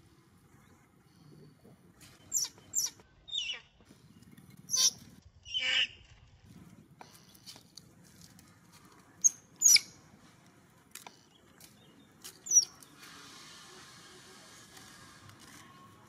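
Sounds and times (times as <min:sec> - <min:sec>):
baby monkey squeaking: 0:02.3 - 0:03.6, 0:04.7 - 0:06.0, 0:09.2 - 0:10.0, 0:12.4 - 0:12.7.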